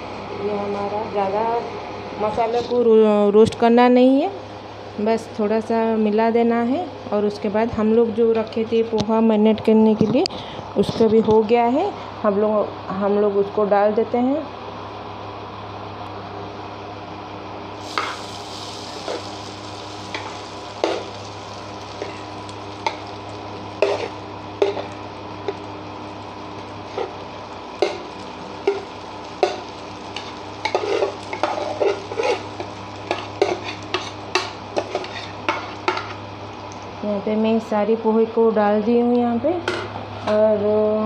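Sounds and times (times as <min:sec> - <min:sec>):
induction cooktop hum: 0:00.0 - 0:41.0
metal spoon scraping and tapping: 0:23.8 - 0:24.9, 0:30.2 - 0:32.4, 0:33.1 - 0:36.1.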